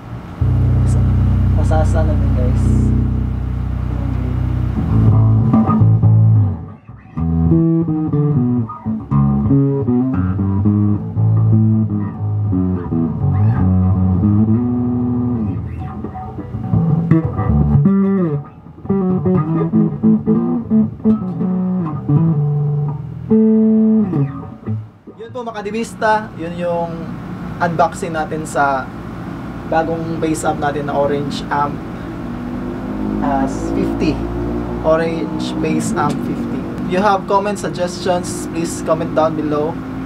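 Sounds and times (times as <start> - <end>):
electric bass plucked notes: 0.0 - 40.0.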